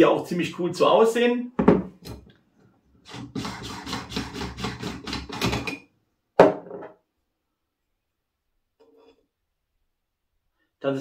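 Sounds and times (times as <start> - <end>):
object knocking on table: 1.6 - 1.9, 6.4 - 7.0.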